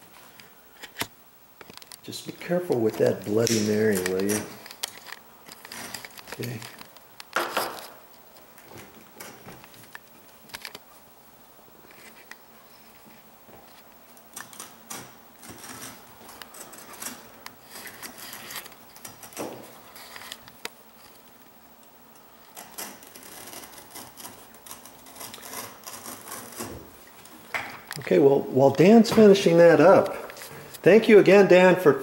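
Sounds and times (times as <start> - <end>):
carpet tools scraping and rustling: 0.1 - 11.0, 11.8 - 21.4, 22.4 - 30.9.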